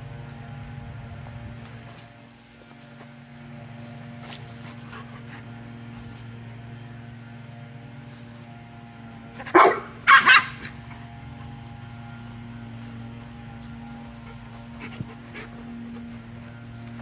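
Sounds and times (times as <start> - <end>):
dog barking: 9.4 - 10.8.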